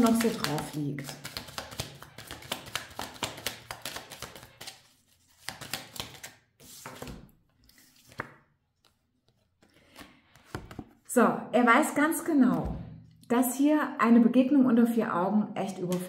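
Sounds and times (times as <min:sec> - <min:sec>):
cards clicking and tapping on table: 0:00.0 - 0:04.7, 0:05.4 - 0:07.2, 0:09.9 - 0:10.9.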